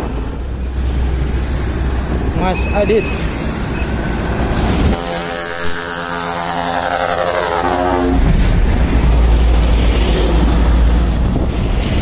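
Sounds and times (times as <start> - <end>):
truck engine and road rumble: 0.0 - 12.0
truck air horn blast: 4.8 - 8.3.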